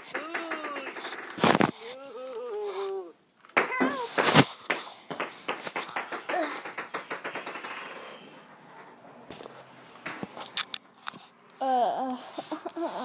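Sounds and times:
sharp knocks: 3.6 - 9.0.

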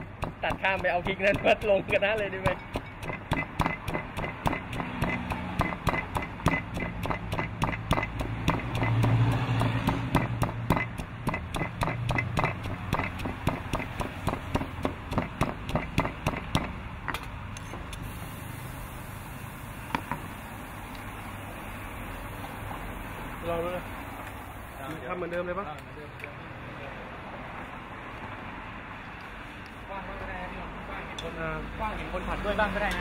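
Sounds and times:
stone pestle pounding in mortar: 0.0 - 17.2.

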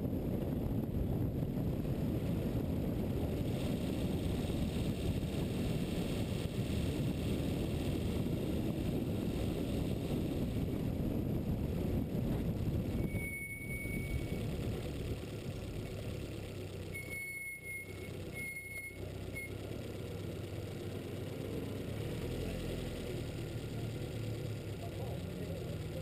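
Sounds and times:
wind and road noise: 0.0 - 26.0
engine idling: 2.4 - 26.0
short high-pitched beeps: 13.0 - 14.4, 17.0 - 19.6.

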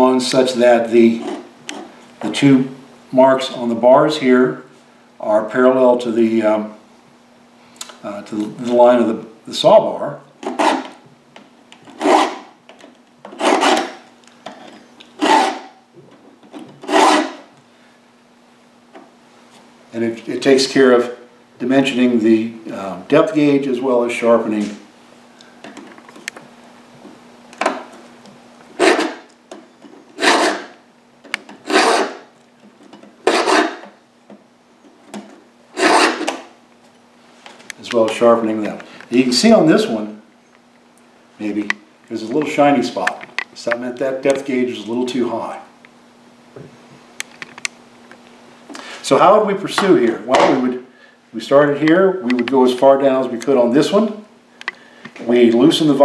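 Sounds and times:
files rasping on chainsaw chain: 1.1 - 1.9, 10.4 - 11.0, 11.9 - 12.5, 13.3 - 14.0, 15.2 - 15.7, 16.8 - 17.5, 28.8 - 29.3, 30.2 - 30.8, 31.6 - 32.3, 33.2 - 33.9, 35.8 - 36.4.

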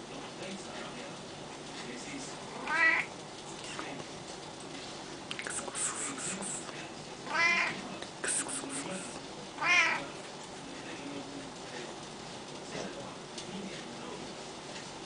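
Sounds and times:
cat meowing: 2.6 - 3.1, 7.3 - 7.8, 9.6 - 10.0.

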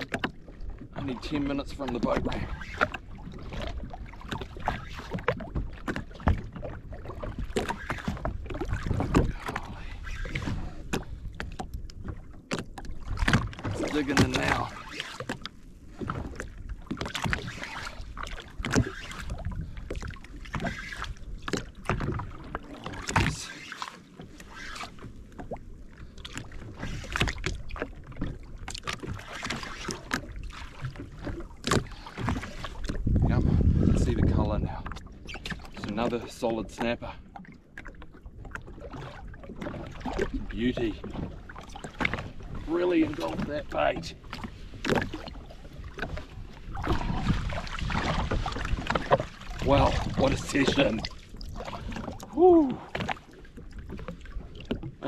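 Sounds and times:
wind rumble on microphone: 0.0 - 14.8, 15.9 - 22.4, 32.2 - 35.9, 38.4 - 53.2
water slapping against hull: 0.0 - 55.0.

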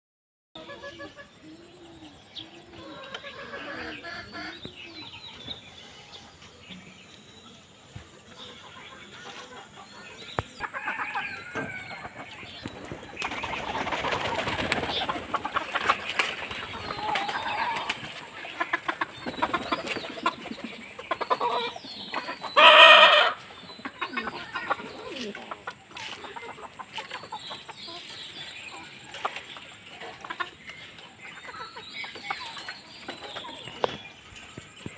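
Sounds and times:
chickens clucking: 0.6 - 34.9
wing flapping and scuffling: 11.4 - 22.3
chicken squawk: 14.1 - 20.4, 21.1 - 26.7.

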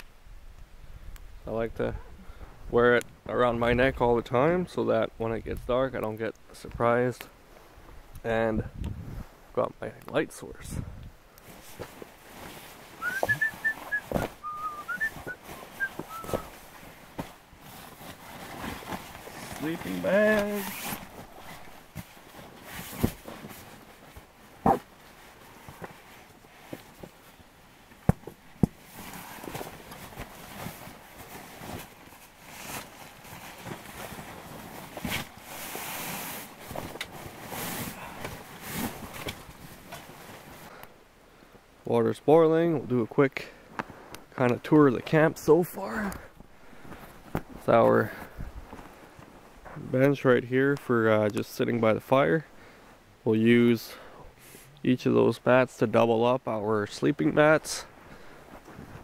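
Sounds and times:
fabric rustling and crinkling: 11.4 - 40.8, 43.8 - 51.2, 56.8 - 59.0
person whistling a tune: 13.0 - 16.5.

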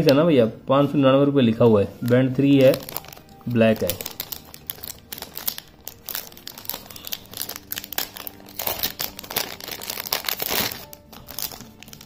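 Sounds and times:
plastic bag crinkling: 1.7 - 12.0.

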